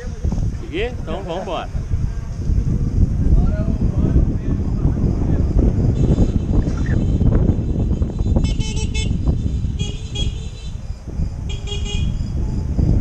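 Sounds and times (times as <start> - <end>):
wind and road noise: 0.0 - 13.0
vehicle horns beeping: 5.9 - 10.8, 11.5 - 12.2.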